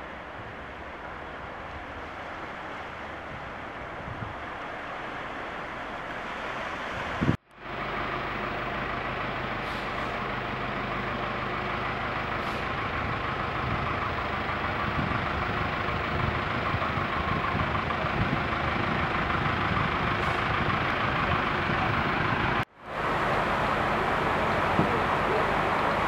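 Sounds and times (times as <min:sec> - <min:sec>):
vehicle engine idling: 0:07.4 - 0:26.0.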